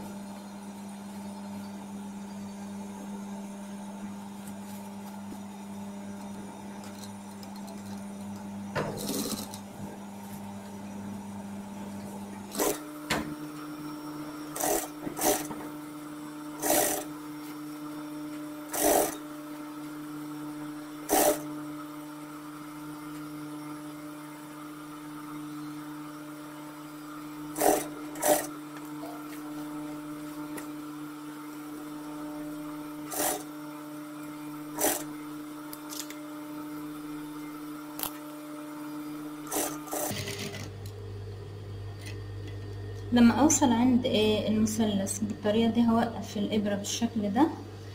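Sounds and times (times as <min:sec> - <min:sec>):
sewing machine running: 0:08.9 - 0:09.6, 0:12.4 - 0:13.2, 0:14.4 - 0:15.9, 0:16.5 - 0:17.2, 0:18.6 - 0:19.7, 0:21.0 - 0:21.6, 0:27.3 - 0:30.3, 0:32.2 - 0:33.8, 0:34.6 - 0:36.2, 0:39.4 - 0:40.9.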